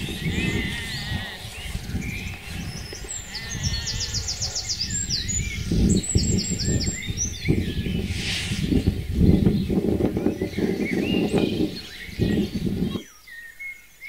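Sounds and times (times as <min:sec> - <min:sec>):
steady low rumble: 0:00.0 - 0:13.0
songbirds singing: 0:00.0 - 0:14.0
soft low thumps: 0:05.0 - 0:13.0.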